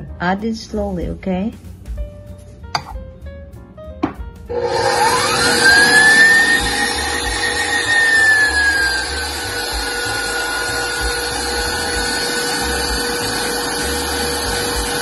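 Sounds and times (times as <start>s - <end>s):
stand mixer motor whine: 4.5s - 15.0s
whisk whirring in bowl: 4.5s - 15.0s.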